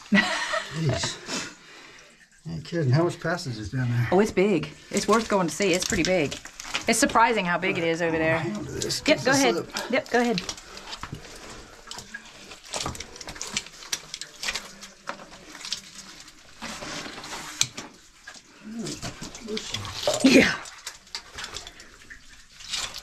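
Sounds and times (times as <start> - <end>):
person saying yeah: 8.0 - 9.9.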